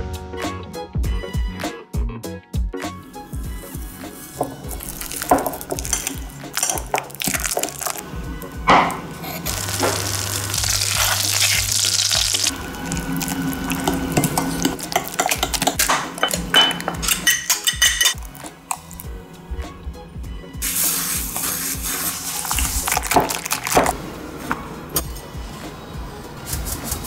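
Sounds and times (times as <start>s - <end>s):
background music: 0.0s - 27.0s
liquid pouring and stirring: 4.4s - 8.1s, 9.4s - 19.1s, 21.4s - 24.0s.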